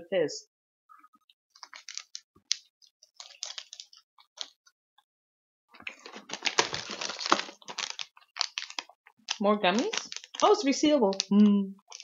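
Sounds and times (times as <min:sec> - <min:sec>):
plastic wrappers crinkling: 0:01.5 - 0:04.6, 0:05.8 - 0:12.0.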